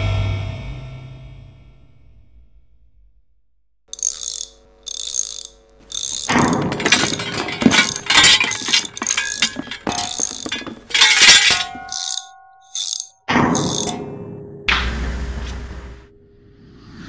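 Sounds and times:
metallic clattering and rattling: 4.0 - 14.0.

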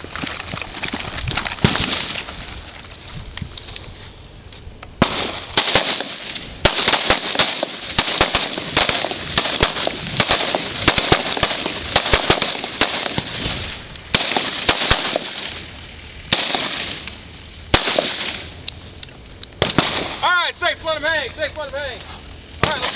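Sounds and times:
rapid gunfire: 5.0 - 13.4, 14.1 - 15.6, 17.8 - 18.4, 22.6 - 22.9.

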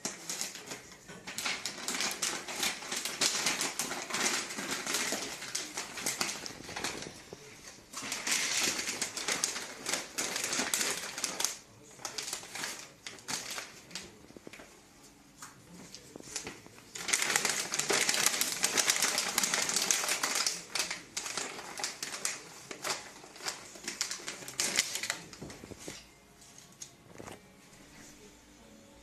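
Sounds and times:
wrapping paper crinkling: 0.0 - 27.4.

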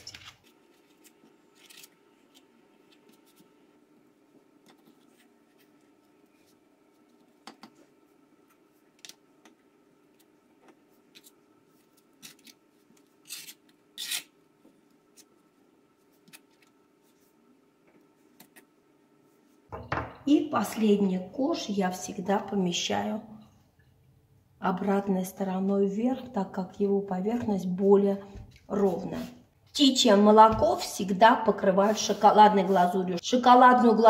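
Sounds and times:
spatula scraping buttercream: 31.5 - 33.0.

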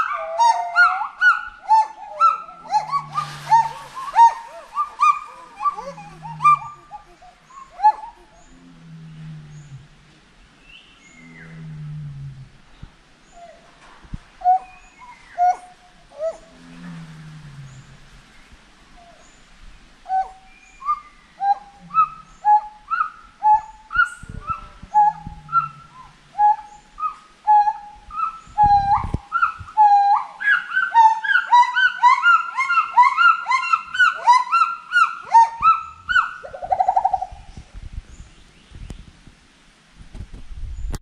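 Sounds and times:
gibbons whooping: 1.7 - 8.4.

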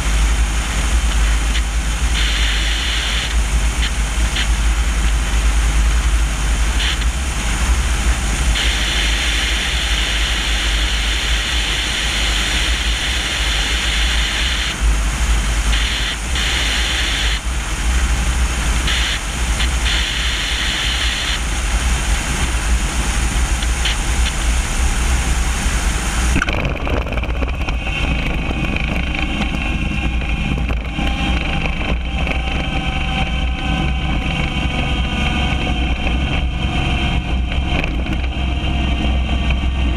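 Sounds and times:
airplane engine droning: 0.0 - 39.9
propeller tones: 0.0 - 39.9
wind buffeting camera: 21.0 - 39.9.

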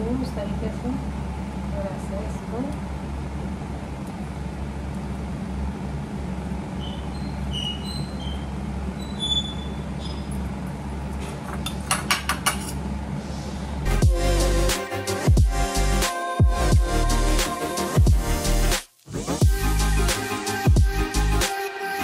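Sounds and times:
steady low hum: 0.0 - 18.7
music: 13.9 - 22.0.

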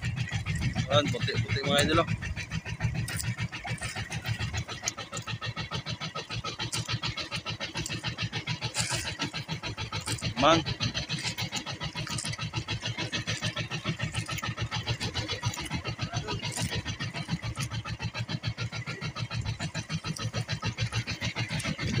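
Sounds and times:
boat engine chugging: 0.0 - 22.0.

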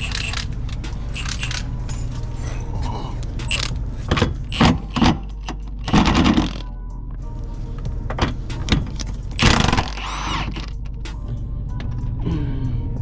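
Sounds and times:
tools clinking and rattling: 0.0 - 2.6, 3.3 - 6.7
impact wrench hammering: 3.5 - 6.6, 9.4 - 10.7.

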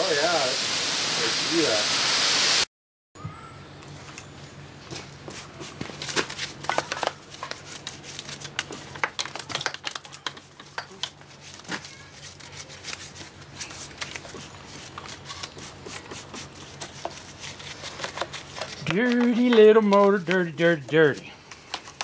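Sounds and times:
hand brush scrubbing metal: 11.4 - 21.3.

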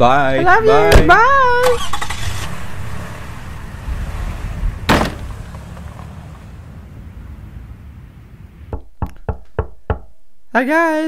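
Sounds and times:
car engine driving off: 0.2 - 8.7
sharp bang: 4.8 - 5.7
knock: 8.7 - 10.1.

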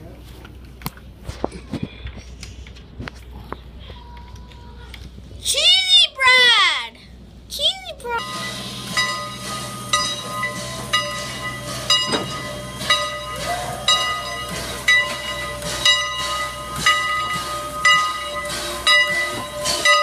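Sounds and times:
locomotive bell ringing: 8.0 - 20.0
steam hissing: 8.1 - 20.0.

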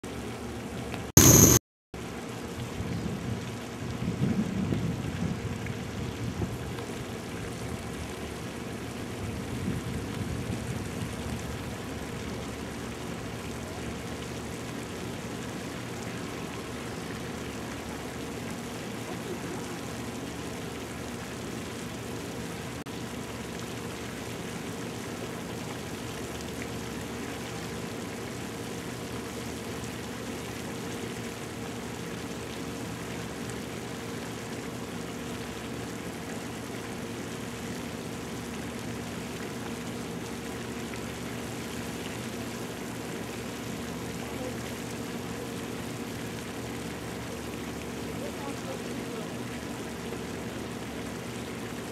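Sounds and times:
low even hum: 0.1 - 1.6.

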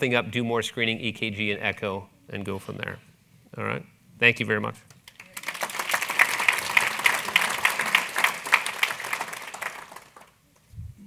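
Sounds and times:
audience applauding: 5.0 - 10.4.

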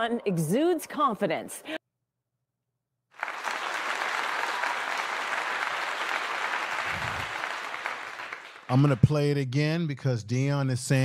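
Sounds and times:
crowd clapping: 3.2 - 9.4.

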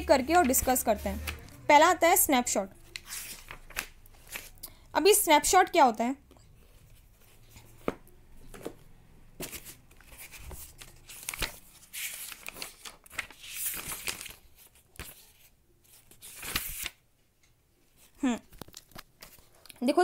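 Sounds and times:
paper pages rustling: 0.0 - 1.6, 2.8 - 4.6, 9.4 - 17.0, 17.9 - 19.8.

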